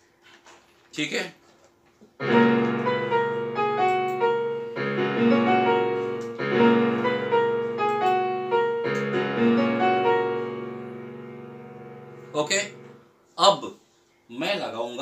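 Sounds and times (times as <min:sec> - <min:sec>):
digital keyboard piano chords: 0:02.2 - 0:13.2.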